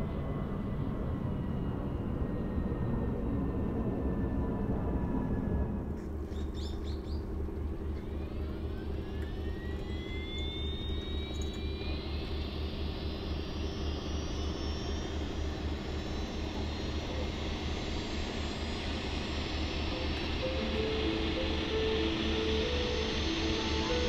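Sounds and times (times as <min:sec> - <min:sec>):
helicopter turbine whine: 0:00.0 - 0:24.0
rotor pulsing: 0:06.1 - 0:24.0.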